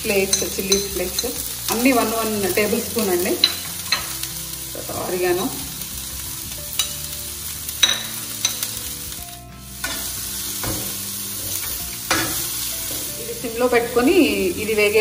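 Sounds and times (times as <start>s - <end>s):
vegetables sizzling in oil: 0.0s - 15.0s
metal spatula scraping a pan: 9.6s - 14.2s.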